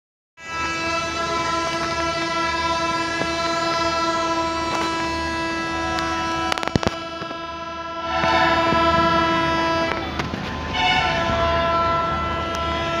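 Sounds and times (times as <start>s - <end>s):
locomotive horn blast: 0.4s - 13.0s.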